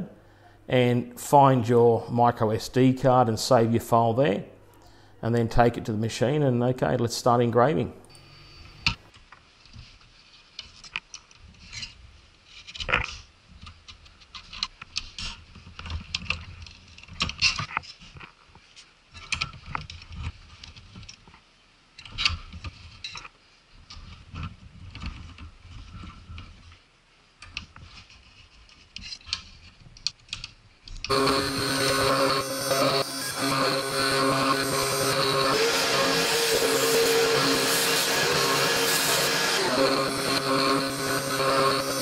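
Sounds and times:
music: 31.1s - 42.0s.

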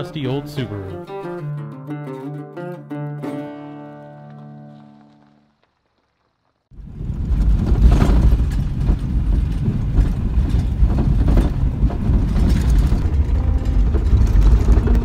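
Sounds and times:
gravel knocks and rattles: 4.2s - 15.0s
low road and engine rumble: 6.7s - 15.0s.

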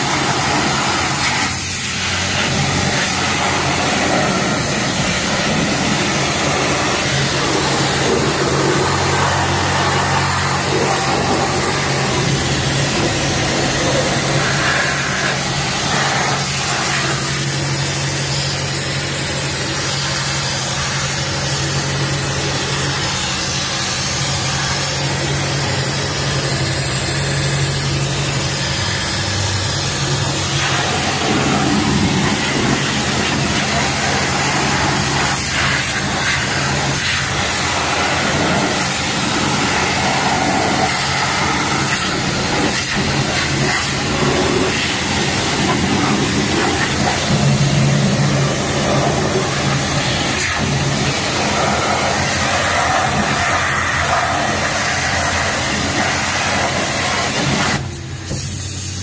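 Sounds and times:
constant low hum: 0.0s - 58.8s
pressure washer spraying water: 0.0s - 59.0s.

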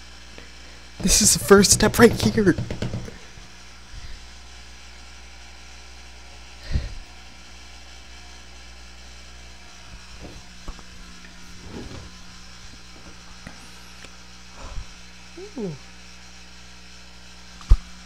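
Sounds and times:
electrical hum and hiss: 0.0s - 18.0s
faint knocks: 1.8s - 3.2s.

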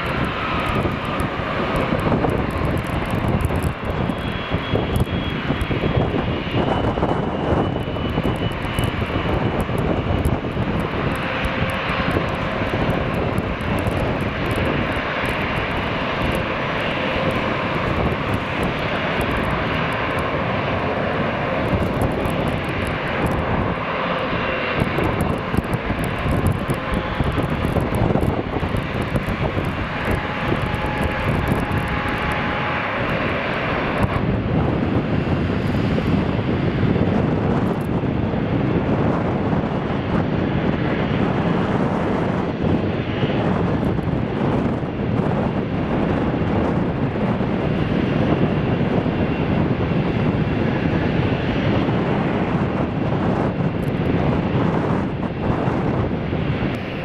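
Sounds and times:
high engine whines: 0.0s - 57.0s
jet engines running: 0.0s - 57.0s.

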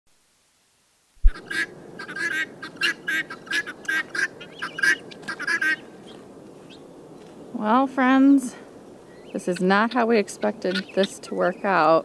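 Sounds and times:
guinea fowl calling: 1.3s - 6.8s, 9.1s - 11.7s.

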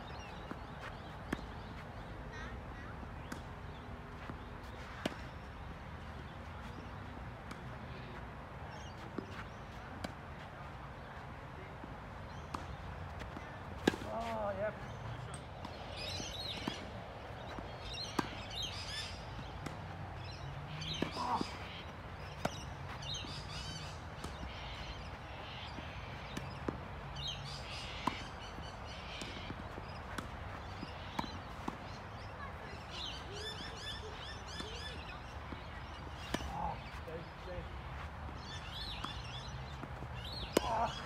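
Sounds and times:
birds chirping: 0.0s - 41.0s
steady outdoor hum: 0.0s - 41.0s
tennis ball pops: 40.3s - 41.0s.

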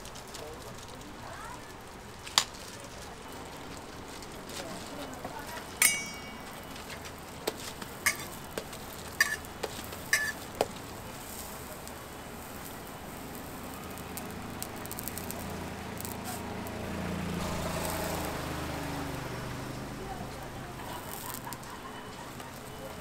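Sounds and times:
dough sizzling on a griddle: 0.0s - 23.0s
metal press clinks: 5.8s - 6.6s.

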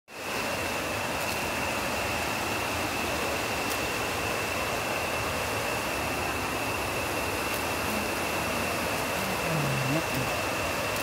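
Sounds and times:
stream rushing over stones: 0.1s - 11.0s
steady high-pitched tone: 6.8s - 10.5s.

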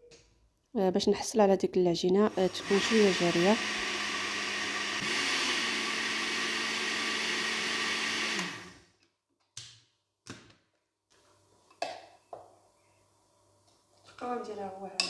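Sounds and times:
electric blender running: 2.2s - 8.9s.

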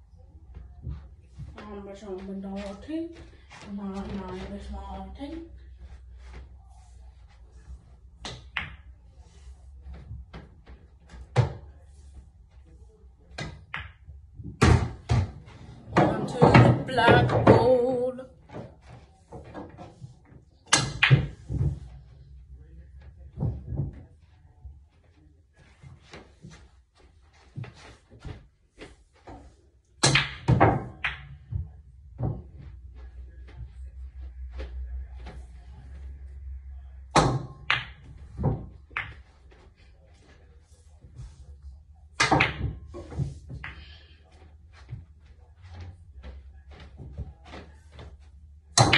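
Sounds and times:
pool balls clacking: 29.4s - 32.7s, 37.2s - 39.6s, 42.2s - 44.4s.

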